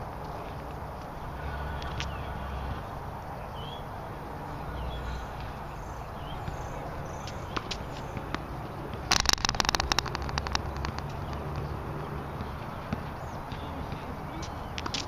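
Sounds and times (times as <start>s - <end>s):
birds chirping: 0.0s - 15.0s
low outdoor rumble: 0.0s - 15.0s
tennis balls being hit: 6.2s - 15.0s.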